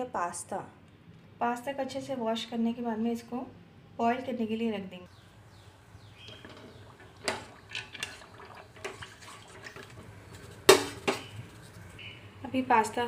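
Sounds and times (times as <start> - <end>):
water sloshing in pot: 6.2 - 11.7.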